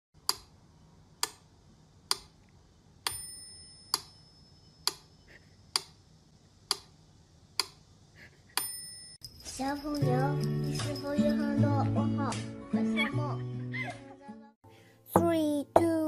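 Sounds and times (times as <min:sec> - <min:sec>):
bell-like ding: 0:03.1 - 0:04.8
clock ticking: 0:06.7 - 0:06.9.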